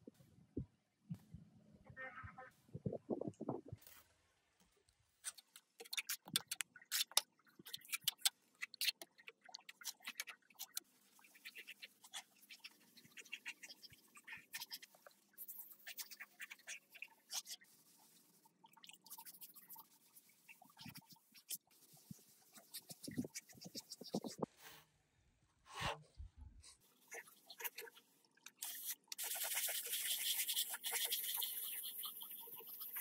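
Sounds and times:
clicks taps and scratching of handwork: 4.6 - 17.5.

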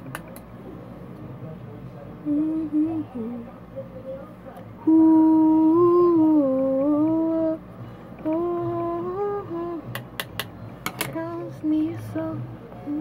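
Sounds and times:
girl humming a tune: 4.9 - 7.6.

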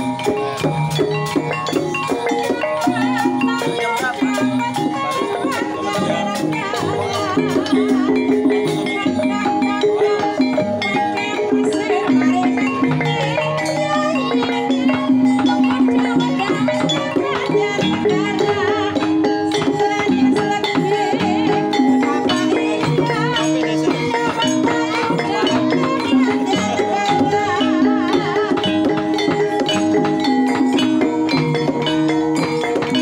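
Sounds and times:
hand drum: 0.0 - 33.0
metal keys struck with mallets: 0.0 - 33.0.

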